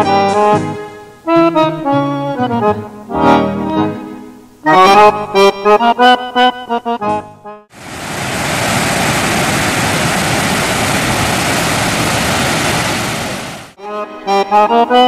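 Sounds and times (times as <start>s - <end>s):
water splashing over stone cascade: 7.8s - 13.8s.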